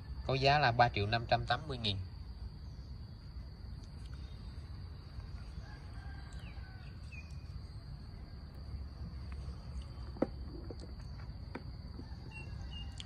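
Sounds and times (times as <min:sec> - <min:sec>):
rooster crowing faintly: 0:05.2 - 0:09.1, 0:11.9 - 0:13.0.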